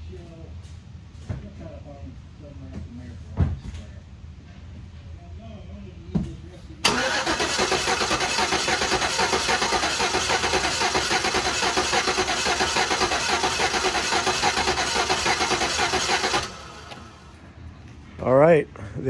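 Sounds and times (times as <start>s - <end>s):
engine cranking on starter: 6.8s - 17.3s.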